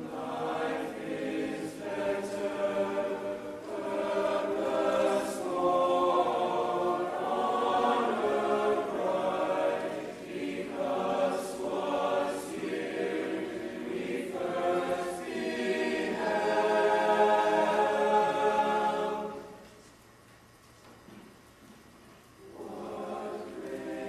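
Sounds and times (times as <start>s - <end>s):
people singing a cappella: 0.0s - 19.8s, 22.4s - 24.0s.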